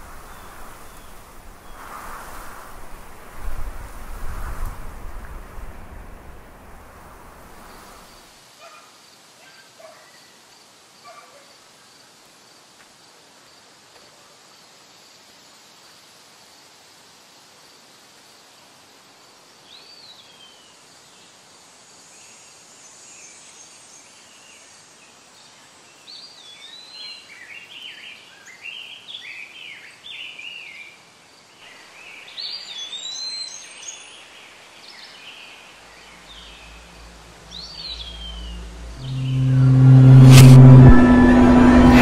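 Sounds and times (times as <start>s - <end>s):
outdoor hiss: 0.0s - 9.4s, 10.2s - 29.3s, 30.5s - 39.0s
songbirds chirping: 31.7s - 39.0s
low rumble: 36.1s - 42.0s.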